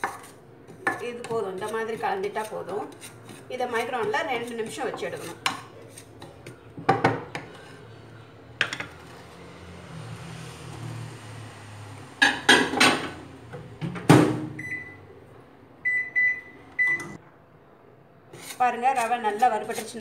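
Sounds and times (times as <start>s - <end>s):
microwave keypad beeps: 14.6s - 15.0s, 15.8s - 17.2s.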